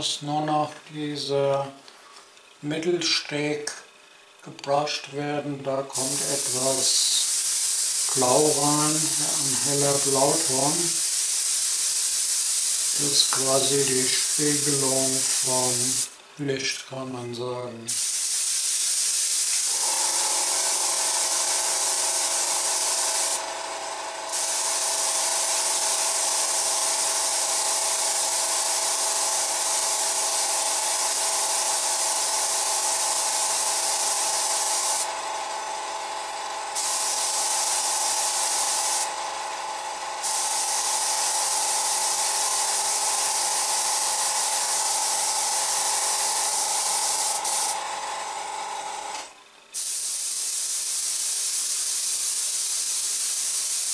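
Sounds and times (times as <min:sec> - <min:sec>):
steady hum: 0:00.0 - 0:18.3
airbrush spraying hiss: 0:06.0 - 0:16.2, 0:17.9 - 0:23.4, 0:24.3 - 0:35.1, 0:36.8 - 0:39.1, 0:40.2 - 0:47.8, 0:49.8 - 0:53.9.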